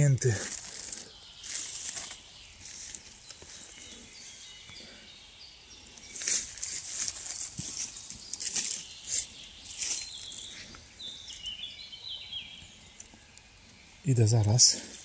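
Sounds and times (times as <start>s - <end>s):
dry leaves rustling: 0.0s - 4.0s, 6.0s - 11.5s.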